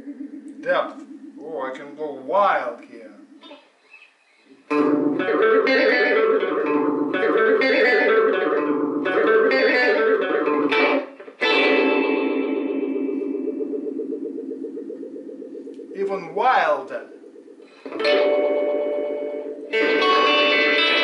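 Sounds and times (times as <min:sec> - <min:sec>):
electric guitar strummed with delay: 0:04.7 - 0:16.4, 0:17.0 - 0:21.0.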